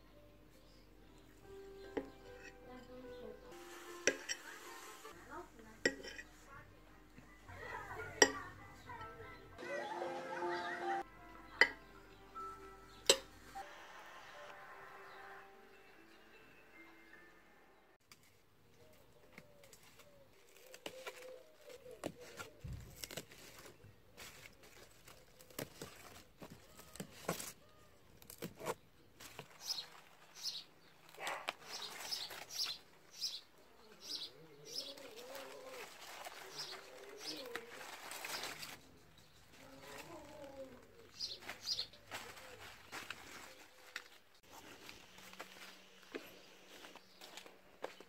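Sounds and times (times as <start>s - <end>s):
lettuce leaves snapping and rustling: 18.1s - 33.1s, 34.8s - 45.8s
pigeon cooing: 33.6s - 38.4s, 39.6s - 42.8s.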